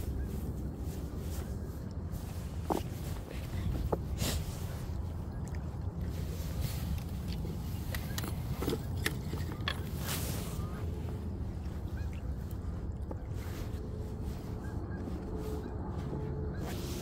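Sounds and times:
footsteps on rocks: 2.2 - 4.1.

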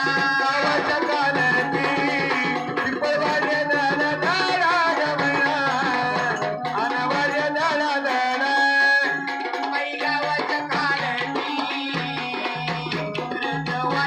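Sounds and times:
hand drum beat: 0.0 - 7.8, 8.8 - 14.0
electronic keyboard: 0.0 - 14.0
person singing: 0.0 - 14.0.

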